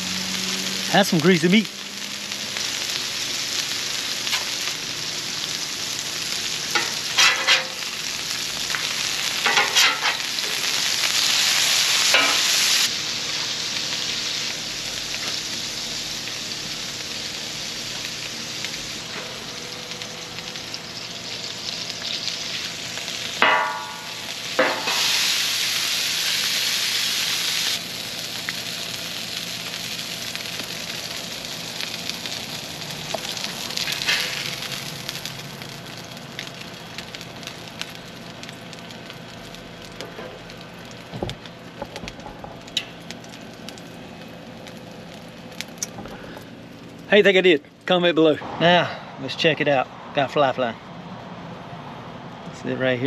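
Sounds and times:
patties sizzling on griddle: 0.0s - 47.6s
metal spatula scraping griddle: 6.7s - 7.9s, 9.4s - 10.7s, 12.0s - 12.6s, 24.6s - 25.3s, 33.8s - 34.6s.

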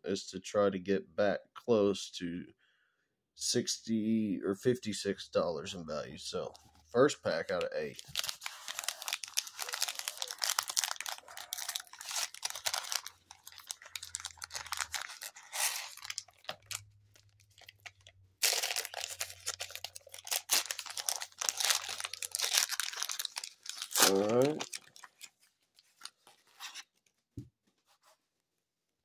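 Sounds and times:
plastic wrapper crinkling and tearing: 7.7s - 27.0s.

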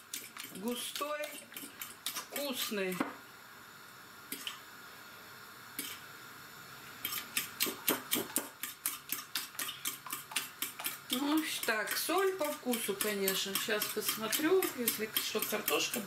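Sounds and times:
fork clicking against a ceramic bowl: 7.1s - 11.0s, 11.6s - 16.0s.

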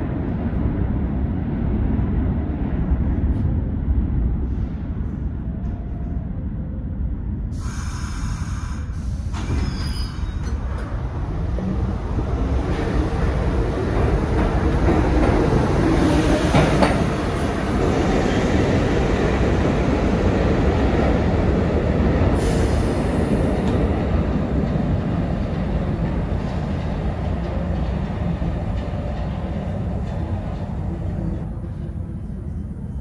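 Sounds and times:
subway train rumbling: 0.0s - 33.0s
high hiss: 7.6s - 9.5s.

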